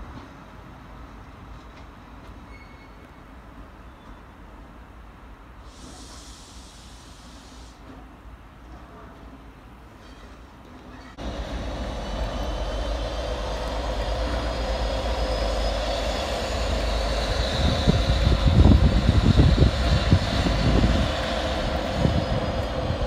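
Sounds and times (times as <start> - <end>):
train wheels rumbling: 10.0 - 23.0
locomotive engine drone: 11.2 - 23.0.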